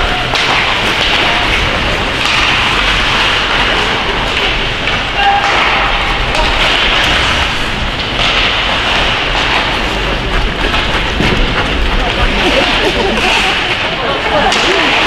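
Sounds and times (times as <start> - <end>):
ice rink din: 0.0 - 15.0.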